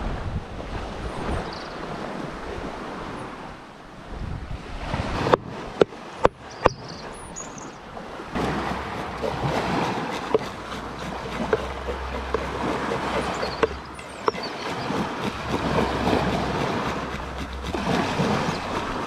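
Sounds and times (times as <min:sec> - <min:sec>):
wind on microphone: 0:00.0 - 0:06.9, 0:08.0 - 0:19.0
surf washing in: 0:07.9 - 0:19.0
knife scraping fish scales: 0:08.4 - 0:19.0.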